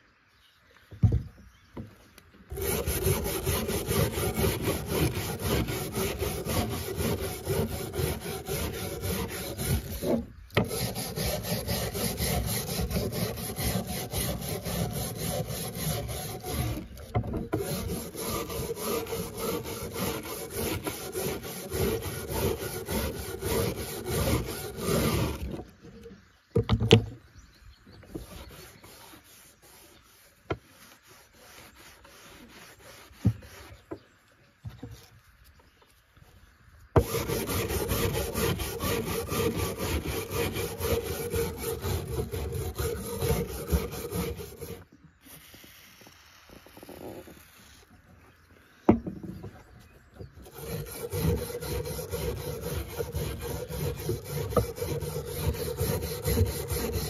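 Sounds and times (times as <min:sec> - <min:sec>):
wire brush scrubbing rusty metal: 0:02.5 - 0:25.7, 0:28.2 - 0:33.9, 0:37.0 - 0:44.9, 0:50.4 - 0:57.0.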